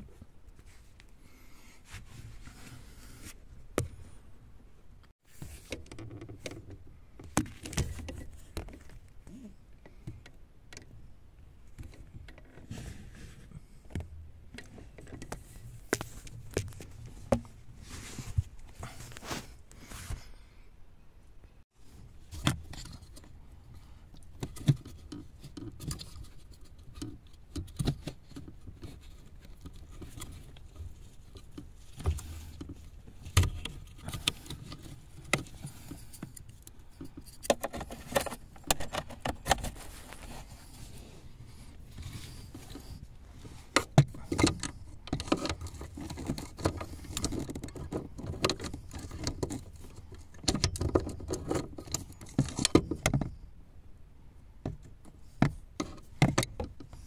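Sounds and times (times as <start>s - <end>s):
metallic clicks and scraping: 22.2s - 53.4s.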